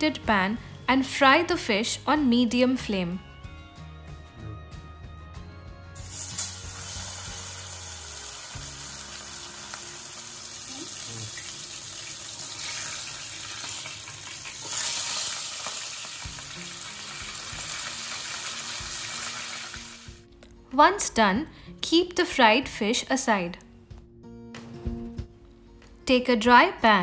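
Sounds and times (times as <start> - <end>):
fish sizzling in hot oil: 6.0 - 20.2.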